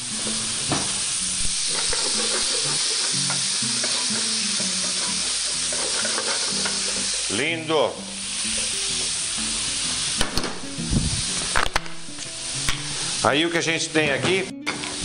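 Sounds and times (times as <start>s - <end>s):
meat sizzling in a frying pan: 0.0s - 11.6s, 12.2s - 13.5s
metal tongs stirring: 1.6s - 7.4s.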